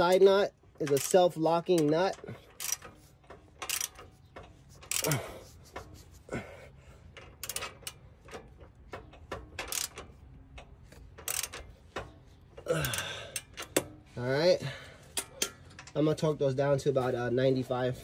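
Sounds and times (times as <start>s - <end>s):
ratchet wrench clicking on bolts: 0.0s - 6.3s, 7.0s - 14.1s.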